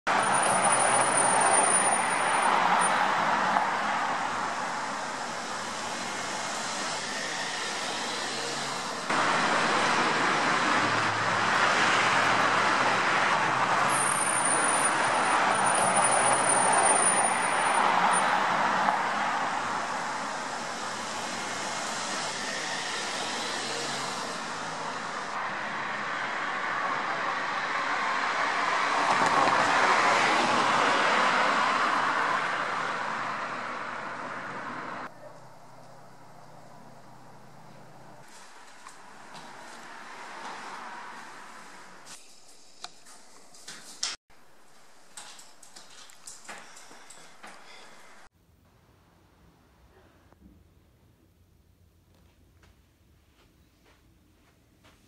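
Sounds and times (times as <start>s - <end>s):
cars driving past: 0.1s - 42.2s.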